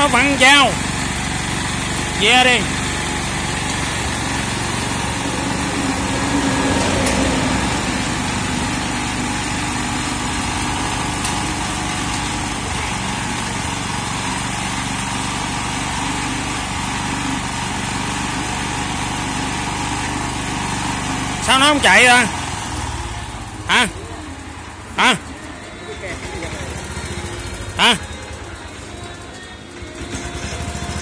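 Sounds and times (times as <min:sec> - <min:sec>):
mower engine running: 0:00.0 - 0:31.0.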